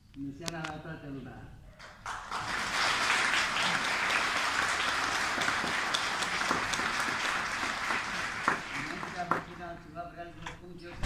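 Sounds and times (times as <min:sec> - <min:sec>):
audience applauding: 0:01.8 - 0:09.7.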